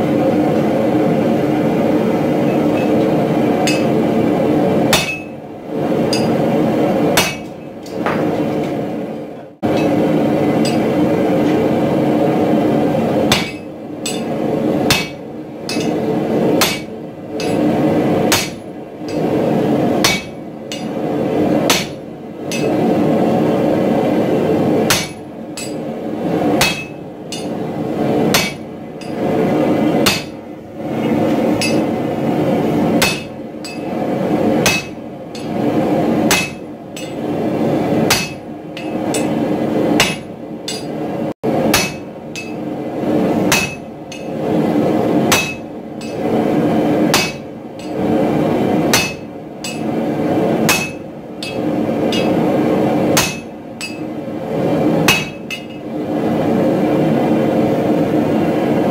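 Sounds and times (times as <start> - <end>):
hammer striking steel on anvil: 2.5 - 4.0, 4.9 - 5.4, 6.1 - 6.4, 7.2 - 8.3, 10.6 - 11.0, 13.3 - 16.0, 16.6 - 17.7, 18.3 - 19.4, 20.0 - 21.0, 21.7 - 22.8, 24.9 - 25.8, 26.6 - 27.6, 28.3 - 29.2, 30.0 - 30.4, 31.6 - 31.9, 33.0 - 34.0, 34.6 - 35.6, 36.3 - 37.2, 38.1 - 39.4, 40.0 - 41.0, 41.7 - 42.7, 43.5 - 44.4, 45.3 - 46.3, 47.1 - 48.0, 48.9 - 49.9, 50.7 - 52.4, 53.2 - 54.1, 55.1 - 55.8.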